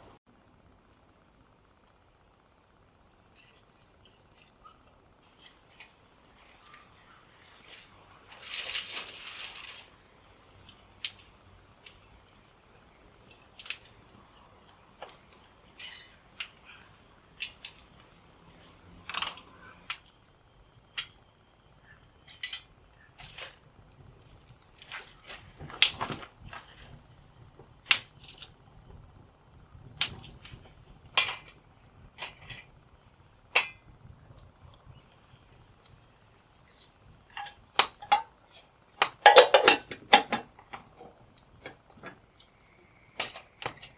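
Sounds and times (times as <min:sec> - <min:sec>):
fire crackling as it is lit: 0:00.4 - 0:43.9
dry sticks snapping: 0:13.5 - 0:14.0
dry twigs snapping: 0:13.5 - 0:14.0, 0:22.3 - 0:26.9, 0:27.8 - 0:28.5, 0:29.9 - 0:32.7.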